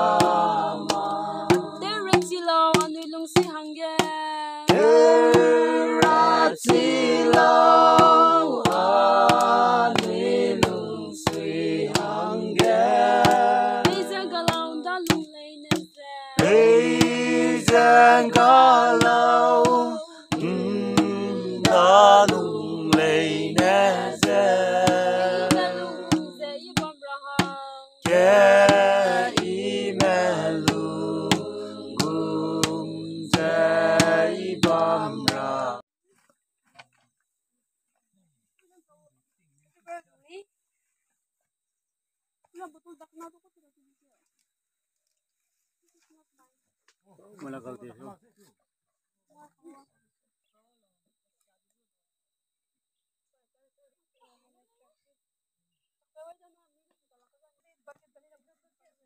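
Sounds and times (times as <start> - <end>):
group singing: 0.0 - 3.6, 4.7 - 35.8
sharp tapping beat: 0.0 - 35.8.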